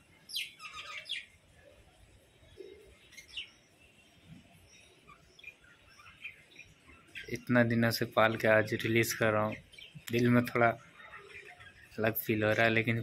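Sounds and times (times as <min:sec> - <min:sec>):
budgerigars chirping: 0:00.3 - 0:01.3, 0:04.7 - 0:12.7.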